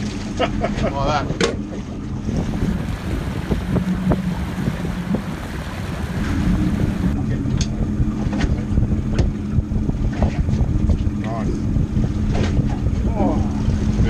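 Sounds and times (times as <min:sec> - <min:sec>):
low steady hum: 0:00.0 - 0:14.0
water slapping boat hull: 0:00.0 - 0:14.0
wind buffeting microphone: 0:00.0 - 0:14.0.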